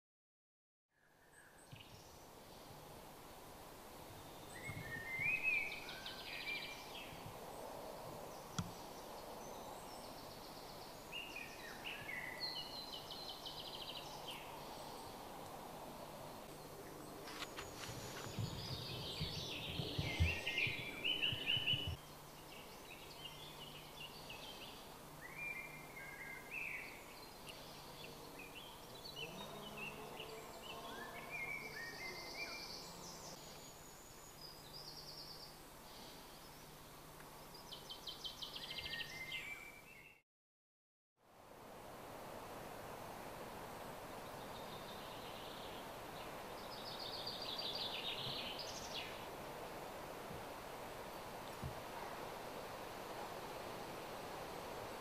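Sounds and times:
faint outdoor background: 0:00.9 - 0:40.2, 0:41.2 - 0:55.0
songbirds singing and calling: 0:01.0 - 0:02.8, 0:04.1 - 0:40.2, 0:44.2 - 0:49.7
low rumble with knocks: 0:18.3 - 0:22.0.

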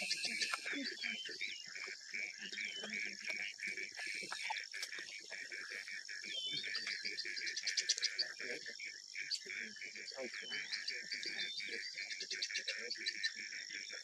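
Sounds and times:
bird trill: 0:00.0 - 0:01.7, 0:06.2 - 0:08.6, 0:09.2 - 0:14.0
insects and frogs calling: 0:00.0 - 0:14.0.

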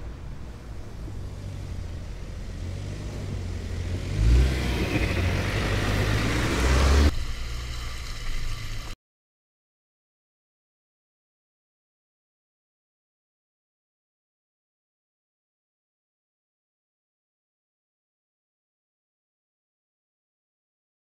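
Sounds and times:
tyres churning through mud: 0:00.0 - 0:08.9
car engine pulling uphill: 0:00.0 - 0:09.0.

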